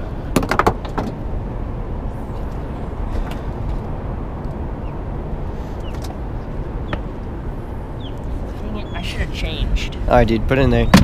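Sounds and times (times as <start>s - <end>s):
low rumbling noise: 0.0s - 11.0s.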